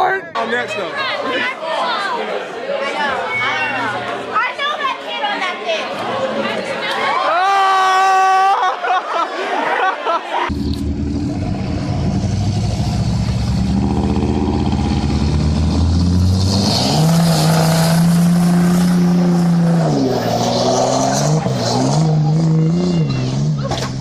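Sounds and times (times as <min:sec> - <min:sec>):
truck engines revving: 0:10.5 - 0:24.0.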